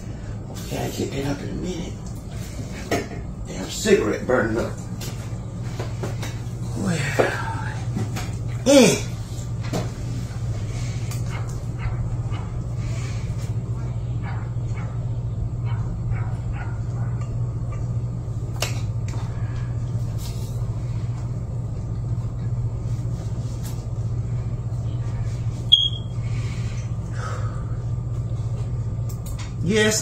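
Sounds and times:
steady low hum: 0.0 - 30.0
short high beep: 25.7 - 26.1.

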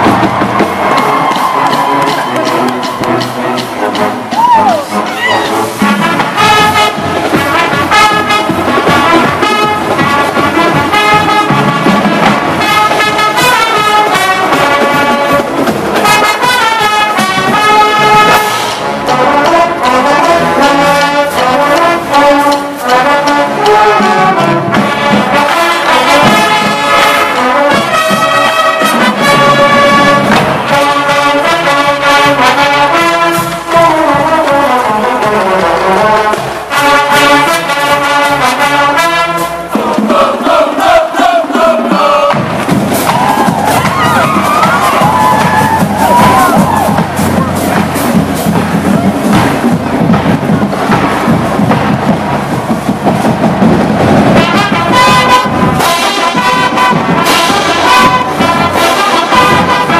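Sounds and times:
marching band horns: 0.0 - 59.9
steady drum beat: 0.0 - 59.9.

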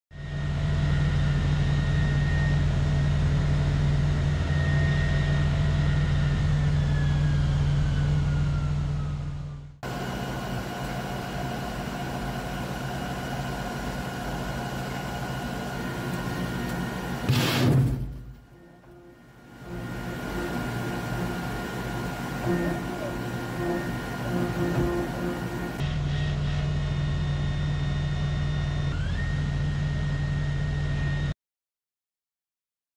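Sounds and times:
short loud burst of noise: 17.3 - 18.4
vehicle deep hum: 18.1 - 31.2
steady equipment tones: 18.5 - 26.4
high whine sliding down: 18.6 - 31.3.

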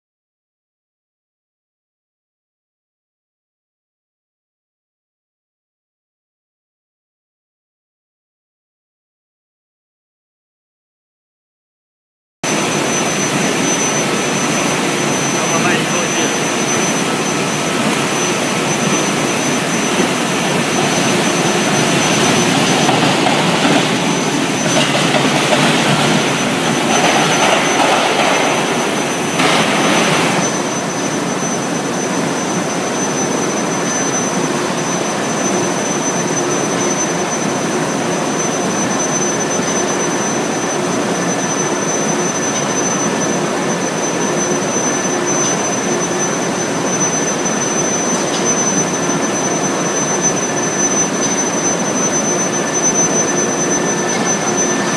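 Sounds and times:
industrial machinery running: 12.4 - 54.9
thin high whine: 12.4 - 54.9.

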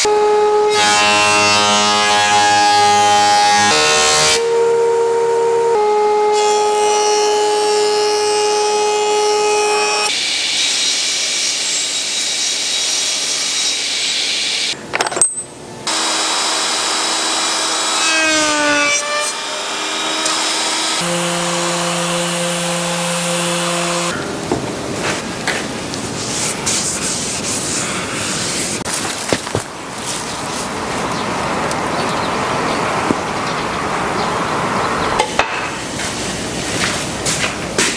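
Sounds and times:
jointer cutting a board: 0.0 - 14.2, 15.9 - 24.2
router whining: 15.9 - 24.2
sanding on wood: 26.1 - 28.9.

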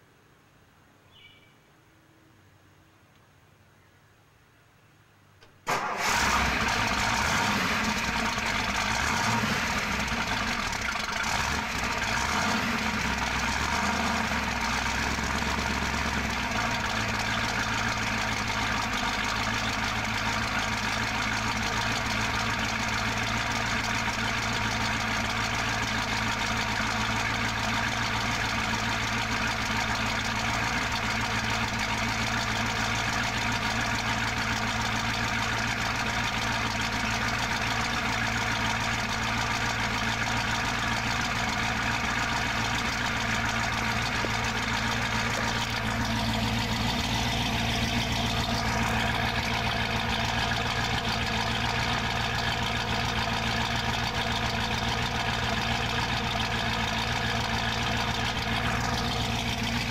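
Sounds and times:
car engine idling: 5.5 - 59.9
car starter cranking: 5.6 - 12.2, 41.3 - 52.8.

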